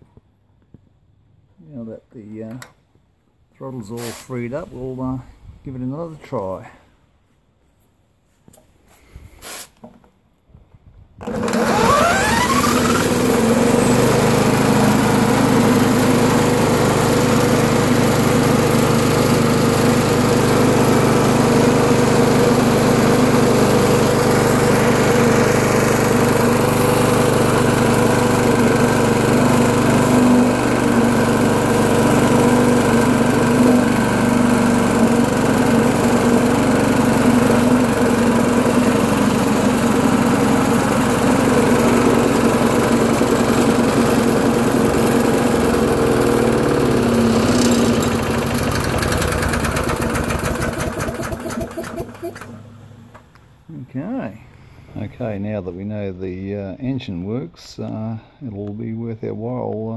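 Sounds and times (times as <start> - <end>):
lawnmower engine running: 11.2 - 53.7.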